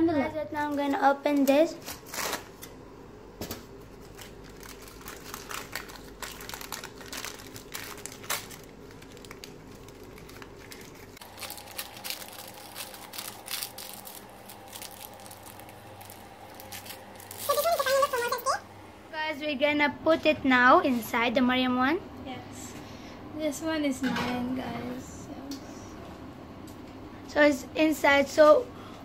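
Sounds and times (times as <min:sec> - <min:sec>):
paper lining peeled and crinkled: 0:00.6 - 0:02.7, 0:03.9 - 0:18.3.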